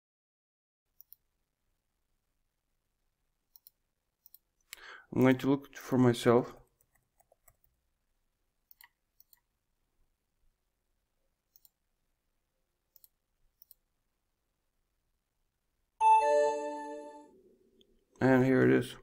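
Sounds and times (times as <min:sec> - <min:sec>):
computer mouse clicks: 0:00.9 - 0:01.3, 0:03.5 - 0:05.4, 0:06.8 - 0:07.8, 0:08.6 - 0:09.5, 0:11.4 - 0:11.8, 0:12.9 - 0:13.9
notification chime: 0:16.0 - 0:17.3.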